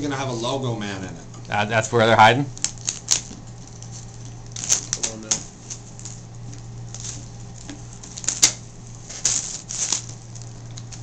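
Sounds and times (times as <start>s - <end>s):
scissors snipping plastic wrap: 2.6s - 6.2s, 6.9s - 11.0s
plastic crinkling: 2.6s - 11.0s.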